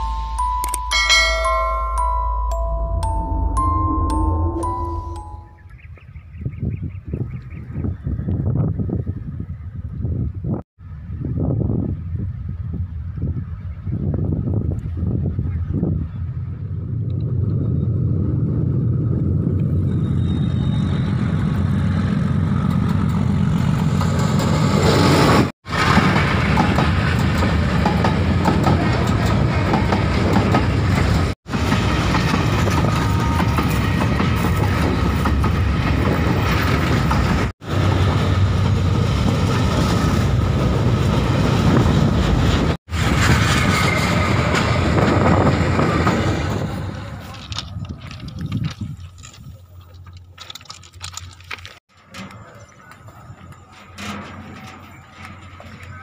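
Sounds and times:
train passing close: 0.0 - 5.7, 16.3 - 48.2
wheels clattering over rails: 50.0 - 56.0.

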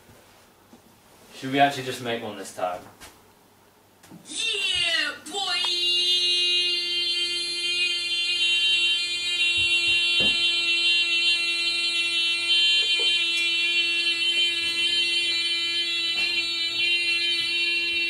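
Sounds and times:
long buzzy vocal note: 5.6 - 18.0.

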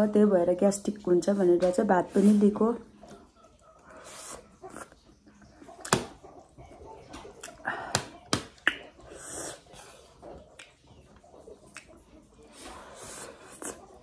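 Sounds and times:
chewing: 2.8 - 14.0.

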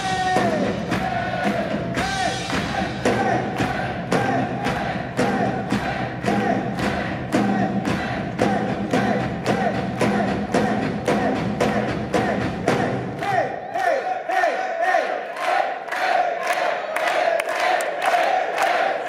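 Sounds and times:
drum and cymbal beat: 0.0 - 13.3.

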